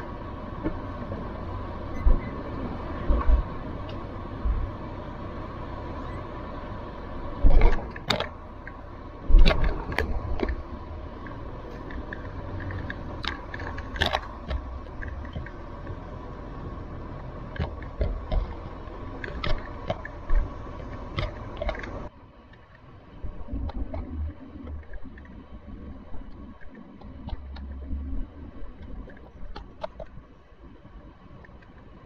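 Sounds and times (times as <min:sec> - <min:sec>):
faint whine: 0:00.0 - 0:32.0
vehicle engine and road drone: 0:00.0 - 0:32.0
vehicle knocks and rattles: 0:07.3 - 0:22.1.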